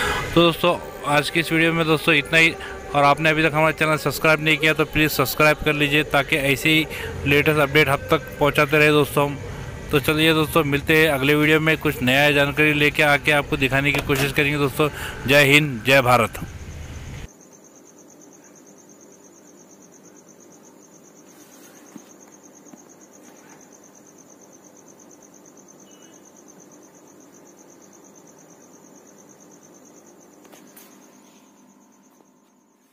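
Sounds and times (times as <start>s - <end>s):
cricket chirping: 0.0s - 32.9s.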